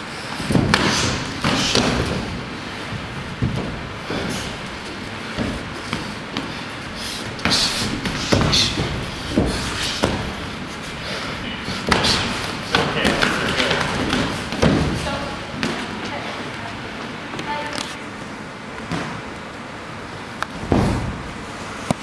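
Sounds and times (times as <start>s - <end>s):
blows thudding on gloves: 0.4s - 4.7s, 7.2s - 10.7s, 11.6s - 15.8s.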